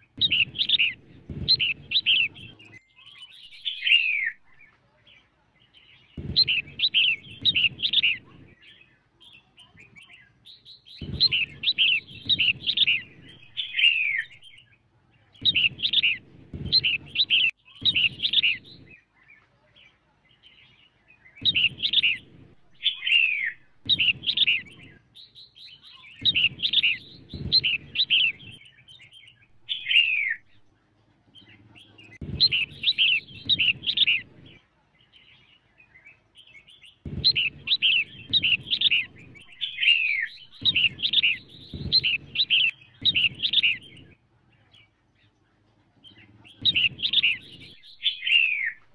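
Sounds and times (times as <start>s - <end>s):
bird chirping descending calls: 0.0s - 4.6s, 6.2s - 8.8s, 11.0s - 14.6s, 15.4s - 19.0s, 21.4s - 25.0s, 25.7s - 30.6s, 32.0s - 34.6s, 37.0s - 44.2s.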